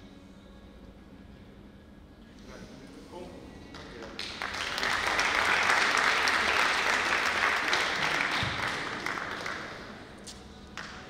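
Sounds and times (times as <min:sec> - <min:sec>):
audience applauding: 0:03.8 - 0:10.1.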